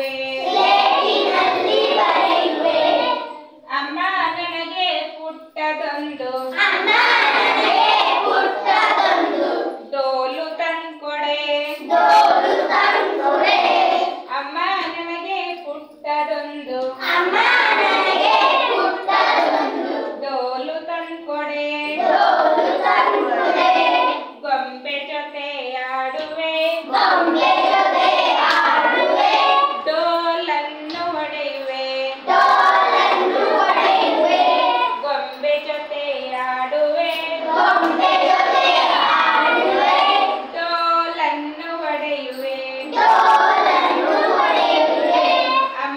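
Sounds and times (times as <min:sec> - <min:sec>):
children singing in chorus: 0:00.0 - 0:03.6, 0:06.5 - 0:09.9, 0:11.8 - 0:14.3, 0:17.0 - 0:20.2, 0:22.0 - 0:24.4, 0:26.8 - 0:29.9, 0:32.1 - 0:35.0, 0:37.3 - 0:40.6, 0:42.8 - 0:45.8.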